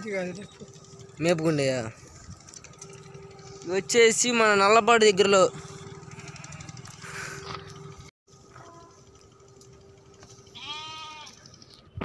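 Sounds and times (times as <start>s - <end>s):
low engine hum: 0.0s - 12.0s
sheep or goat bleat: 6.1s - 7.1s, 10.5s - 11.4s.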